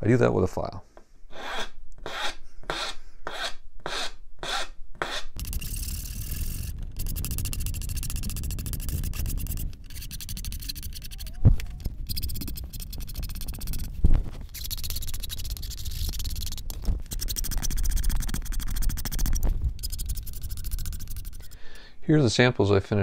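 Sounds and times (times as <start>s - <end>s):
hand file rasping on wood: 1.3s - 5.4s.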